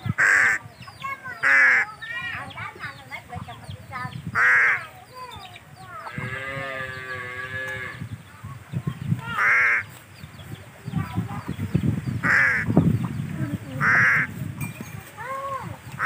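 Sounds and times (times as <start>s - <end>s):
crows cawing: 4.4s - 4.9s, 9.4s - 9.9s, 12.2s - 12.7s, 13.8s - 14.3s.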